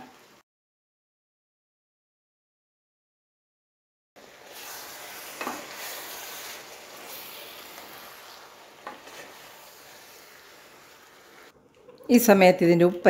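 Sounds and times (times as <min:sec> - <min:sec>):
sizzling hiss: 0:00.0 - 0:00.4, 0:04.2 - 0:11.6
spatula stirring in a wok: 0:04.2 - 0:11.6.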